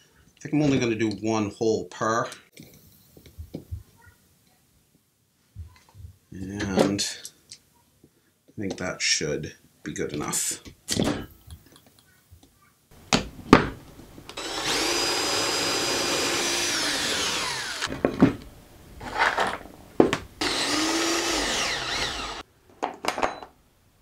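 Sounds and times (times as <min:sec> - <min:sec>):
cordless drill whining: 0:14.3 - 0:17.9, 0:20.4 - 0:22.4.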